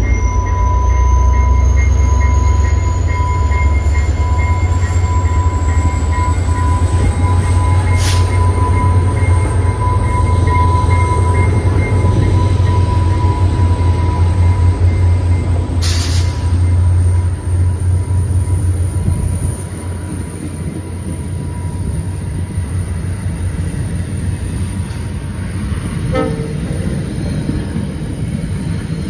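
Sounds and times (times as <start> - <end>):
high-pitched squeal: 0.0 - 19.6
diesel locomotive engine rumble: 0.0 - 29.0.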